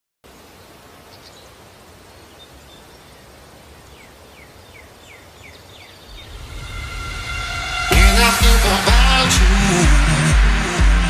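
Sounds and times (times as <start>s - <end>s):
background hiss: 0.2s - 10.8s
music: 6.2s - 11.0s.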